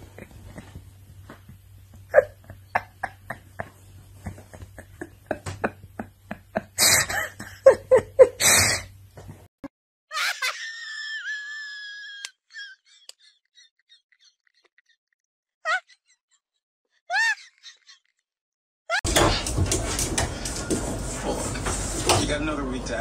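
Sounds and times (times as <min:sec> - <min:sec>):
high-pitched squeaky cry: 0:10.1 - 0:12.8, 0:15.7 - 0:16.0, 0:17.1 - 0:17.8.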